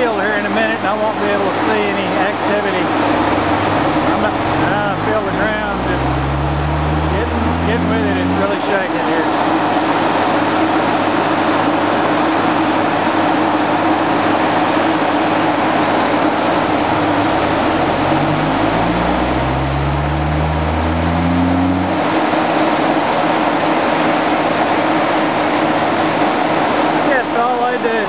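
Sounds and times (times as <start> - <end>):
truck engine drone: 0.0 - 27.8
low hum rising in pitch: 2.6 - 10.1, 15.5 - 23.2.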